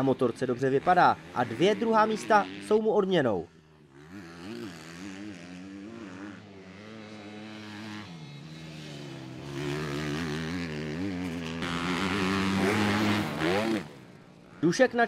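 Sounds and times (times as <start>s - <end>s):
motocross bike engines revving: 0.0s - 15.0s.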